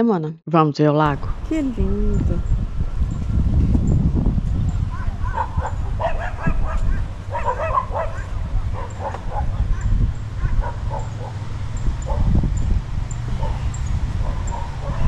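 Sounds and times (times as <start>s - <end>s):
steady low rumble: 1.1s - 15.0s
small dogs barking: 4.7s - 12.7s, 13.3s - 15.0s.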